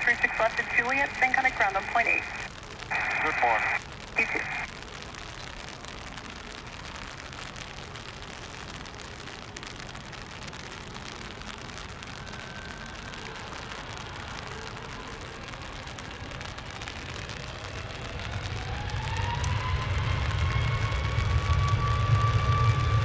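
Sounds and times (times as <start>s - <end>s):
faint jet engine whine: 0.0s - 4.8s, 10.6s - 23.0s
steady rain falling: 0.0s - 23.0s.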